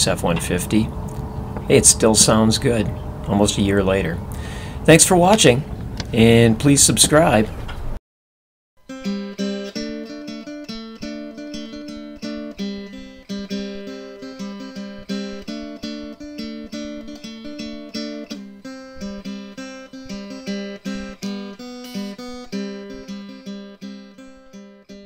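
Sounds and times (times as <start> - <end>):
acoustic guitar plucking: 8.8 - 25.0.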